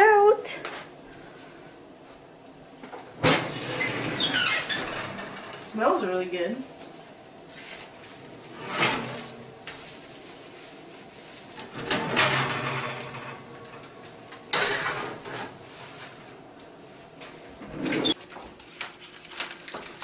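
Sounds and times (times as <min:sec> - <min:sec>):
oven rack scraping: 0:03.2 - 0:06.6, 0:07.5 - 0:16.5, 0:17.4 - 0:18.2.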